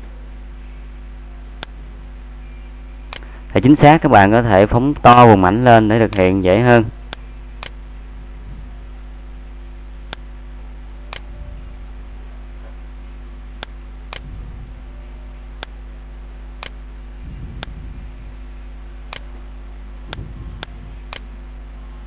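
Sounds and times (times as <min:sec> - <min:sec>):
low electrical hum: 0:00.0 - 0:22.0.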